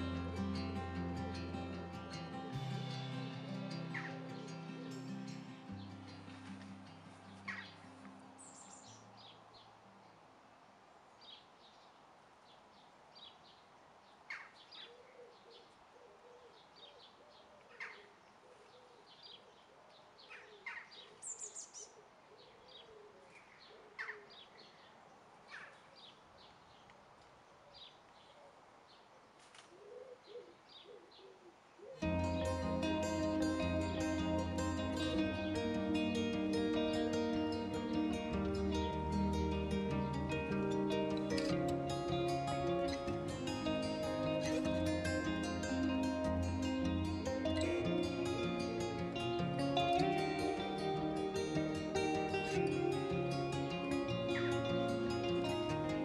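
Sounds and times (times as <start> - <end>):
low wavering bird call: 0.0 - 6.3.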